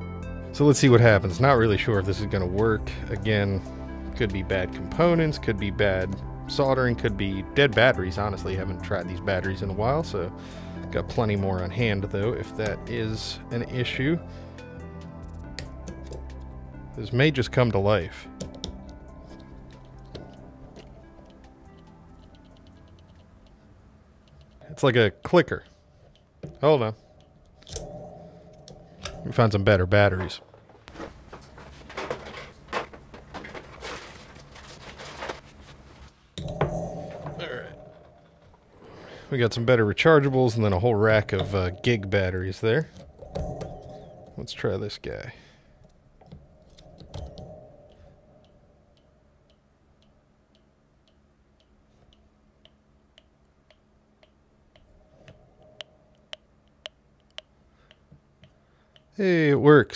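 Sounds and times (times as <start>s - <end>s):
speaker ticking clicks: 18.2s - 23.6s, 24.2s - 30.3s, 45.8s - 59.2s
small objects clicking and rustling: 30.9s - 35.7s.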